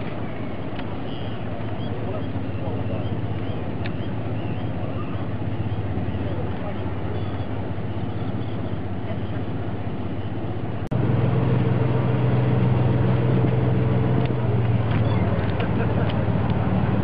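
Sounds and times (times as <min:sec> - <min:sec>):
boat engine drone: 0:00.0 - 0:17.0.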